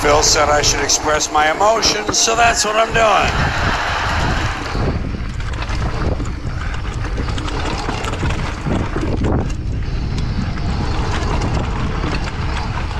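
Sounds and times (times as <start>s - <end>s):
bike tyres rumbling on dirt: 0.0s - 12.9s
wind on microphone: 0.0s - 12.9s
bike knocking and rattling: 5.0s - 12.9s.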